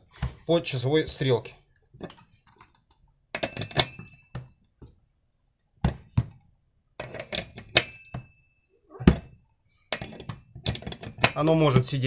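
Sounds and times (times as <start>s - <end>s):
metal clanks and knocks: 2.0s - 2.7s, 3.3s - 4.6s, 7.0s - 8.4s, 9.0s - 11.9s.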